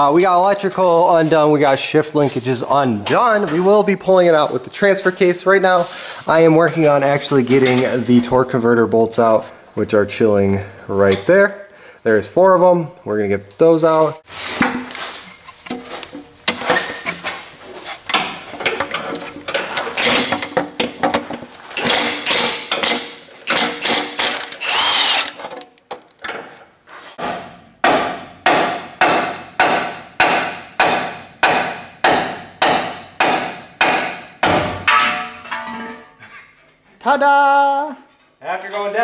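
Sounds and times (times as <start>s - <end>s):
impact wrench hammering: 21.8s - 25.4s, 27.2s - 35.4s.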